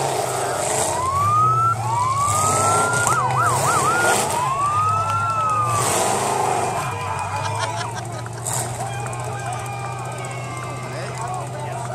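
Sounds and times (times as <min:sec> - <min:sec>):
car engines humming: 0:00.0 - 0:11.9
siren wailing and yelping: 0:00.9 - 0:05.9.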